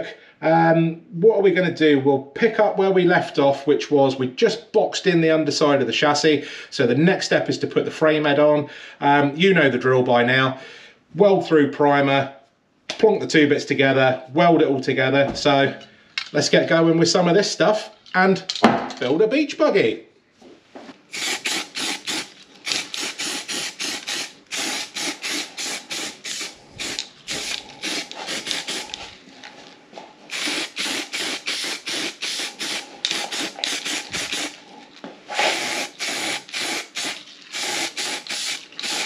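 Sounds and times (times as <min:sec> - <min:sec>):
aerosol spray hissing bursts: 0:21.1 - 0:29.1, 0:30.3 - 0:34.6, 0:35.3 - 0:39.0.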